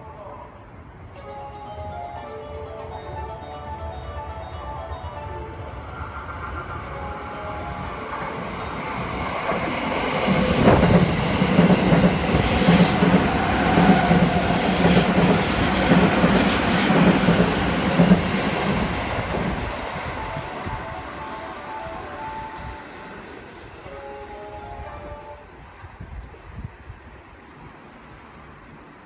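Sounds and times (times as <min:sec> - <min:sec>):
electric train passing: 0:00.0 - 0:29.0.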